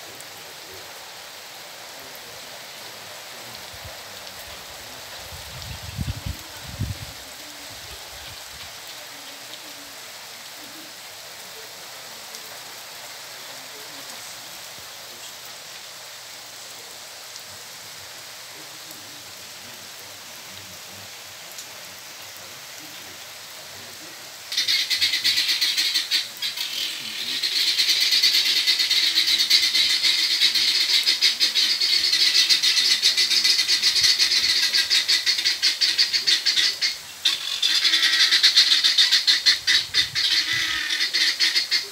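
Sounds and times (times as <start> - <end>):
heavy rain hissing: 0.0 - 41.9
high-pitched pulsing calls: 24.5 - 41.9.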